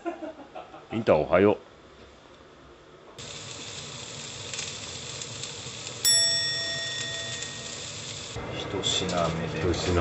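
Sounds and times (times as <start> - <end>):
meat sizzling in a frying pan: 3.2 - 8.4
bright chime: 6.0 - 8.3.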